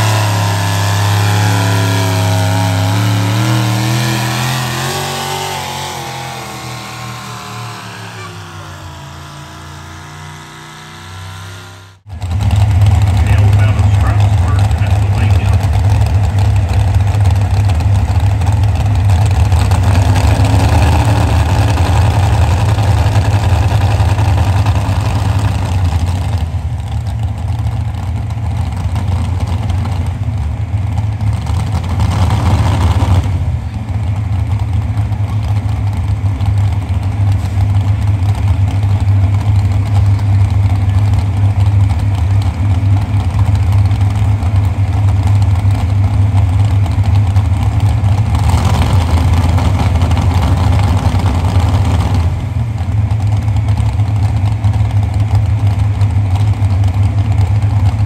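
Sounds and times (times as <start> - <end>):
engine throttle blips: 0.0 - 58.0
tractor engines idling: 0.0 - 58.0.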